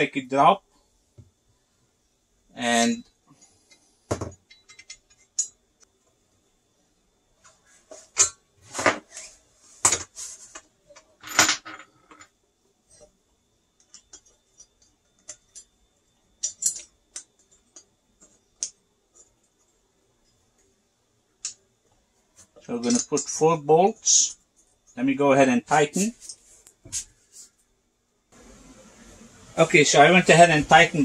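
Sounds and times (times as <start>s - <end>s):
metal bolts clinking and clanking: 4.3s - 5.6s, 16.4s - 17.8s.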